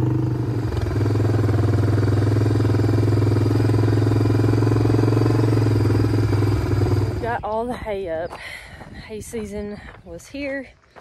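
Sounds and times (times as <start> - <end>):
vehicle engine droning: 0.0 - 7.5.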